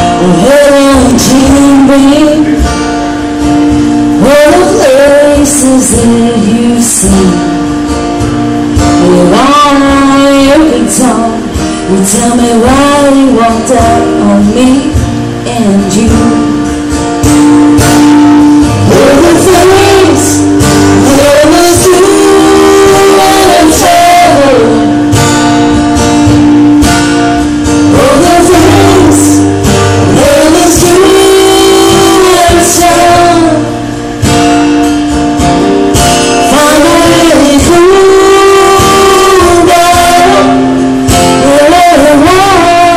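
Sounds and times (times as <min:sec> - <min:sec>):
man singing: 0:00.0 - 0:02.7, 0:04.1 - 0:07.7, 0:08.9 - 0:14.9, 0:18.8 - 0:25.1, 0:27.9 - 0:34.0, 0:36.4 - 0:42.9
strummed acoustic guitar: 0:00.0 - 0:42.9.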